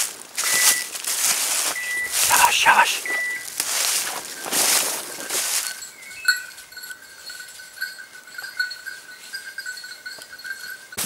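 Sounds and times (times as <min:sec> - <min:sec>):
dry leaves crunching underfoot: 0:00.0 - 0:05.8
dog bell jingling: 0:04.3 - 0:11.0.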